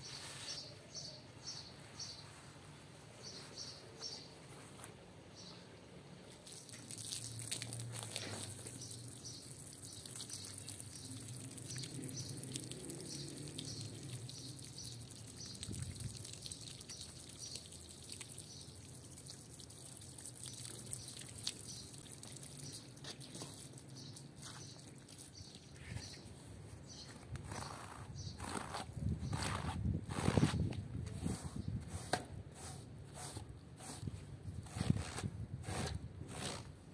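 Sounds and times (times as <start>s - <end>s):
water trickling and dripping: 6.3s - 26.3s
hose water splashing on rug: 6.3s - 26.4s.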